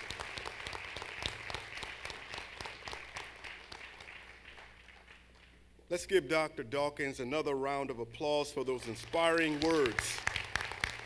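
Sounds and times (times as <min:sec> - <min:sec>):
audience applauding: 0:00.0 - 0:05.6, 0:08.8 - 0:11.0.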